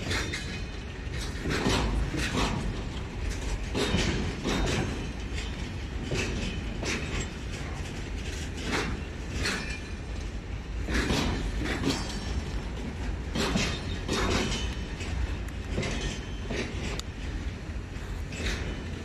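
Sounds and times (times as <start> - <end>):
train rumble: 0.0 - 19.0
train wheels clacking over rail joints: 0.0 - 19.0.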